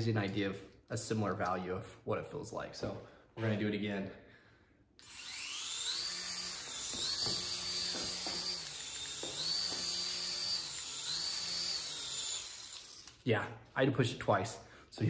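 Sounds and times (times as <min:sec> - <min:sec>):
small propeller motors whining: 0:05.0 - 0:13.2.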